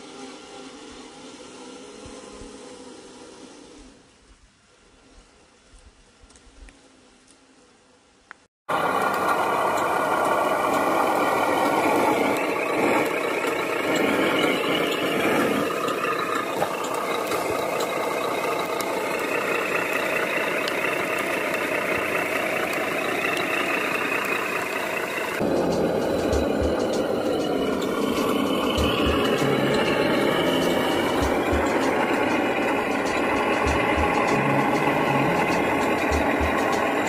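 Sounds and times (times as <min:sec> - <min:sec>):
diesel truck engine running: 0:08.7 - 0:37.0.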